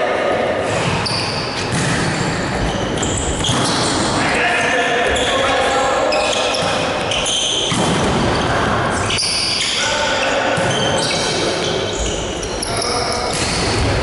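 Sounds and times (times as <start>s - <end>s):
echoing sports hall noise: 0.0s - 14.0s
volleyball hit: 1.6s - 2.4s, 7.6s - 8.4s.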